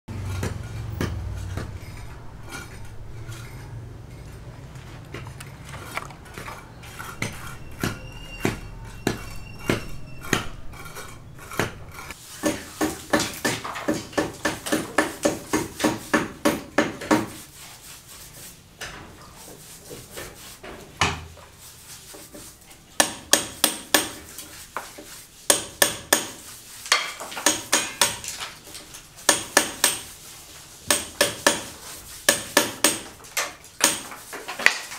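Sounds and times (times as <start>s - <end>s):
trowel clinking and scraping: 0.1s - 16.1s.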